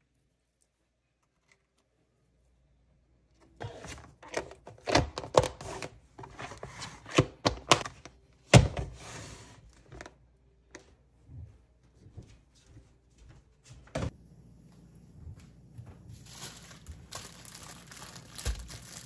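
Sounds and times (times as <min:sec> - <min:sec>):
plastic containers clicking and knocking: 0:07.1 - 0:08.7.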